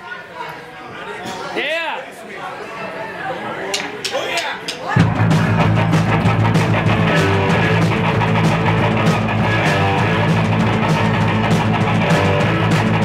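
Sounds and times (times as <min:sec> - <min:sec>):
drum kit with cymbals: 0:05.0 - 0:13.0
electric bass: 0:05.0 - 0:13.0
electric guitar: 0:05.0 - 0:13.0.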